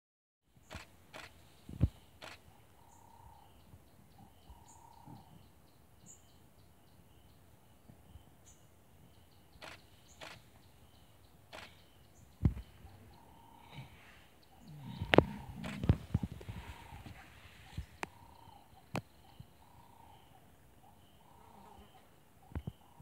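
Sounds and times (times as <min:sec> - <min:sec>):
bird chirps and calls: 0:00.6 - 0:07.5, 0:08.1 - 0:23.0
insects chirring: 0:09.6 - 0:17.2.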